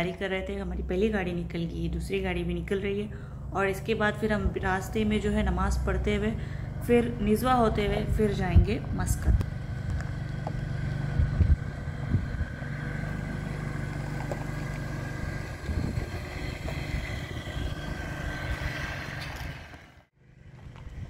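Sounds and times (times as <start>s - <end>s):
car engine running: 0.7s - 21.0s
tyres crunching on gravel: 8.8s - 19.9s.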